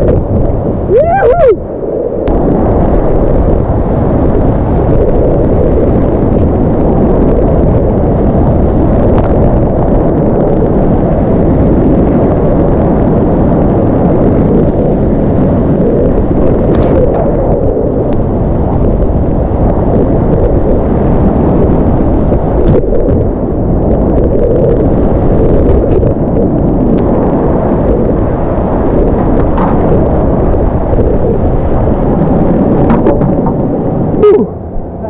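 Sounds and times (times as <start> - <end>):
whitewater river roaring: 0.9 - 1.6.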